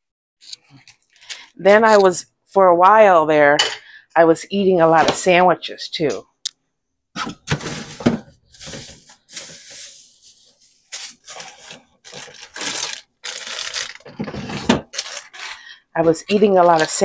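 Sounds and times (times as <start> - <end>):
plastic bags crinkling: 7.5 - 17.0.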